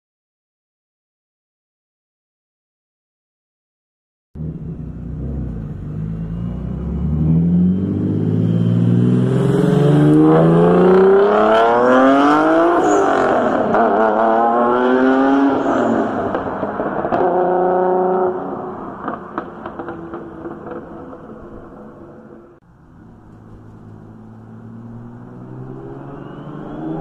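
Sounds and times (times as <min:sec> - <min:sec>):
car engine accelerating hard: 0:04.4 - 0:21.2, 0:23.2 - 0:27.0.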